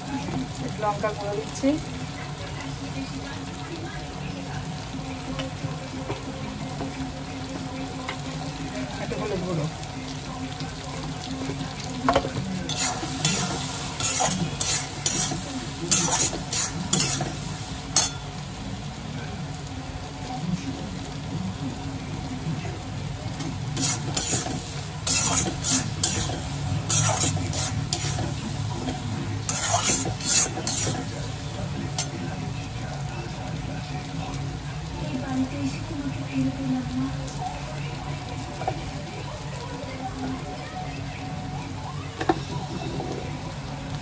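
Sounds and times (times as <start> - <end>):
chicken sizzling in a pan: 0.0 - 44.0
spoon scraping a pan: 12.1 - 18.3, 23.4 - 32.2.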